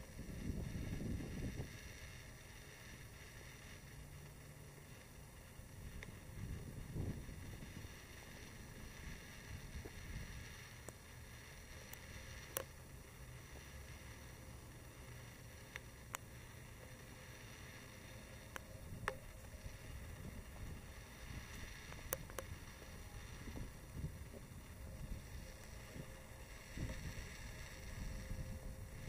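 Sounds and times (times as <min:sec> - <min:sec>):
sharp clicks: 0:18.4 - 0:19.7.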